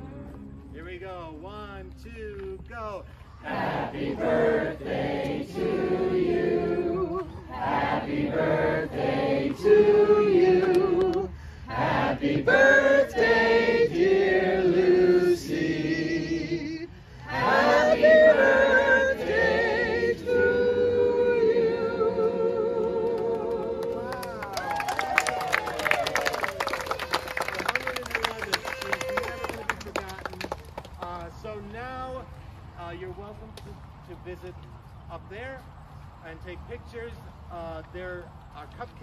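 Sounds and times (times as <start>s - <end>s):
crowd singing: 3.4s - 24.4s.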